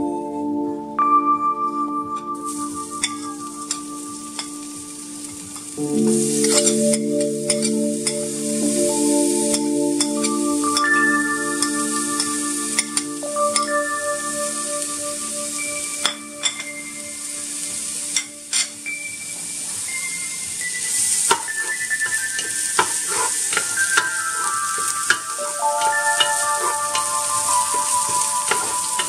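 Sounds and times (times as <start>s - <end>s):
soft instrumental music: 0.0s - 29.0s
paste sizzling in hot oil: 19.9s - 29.0s.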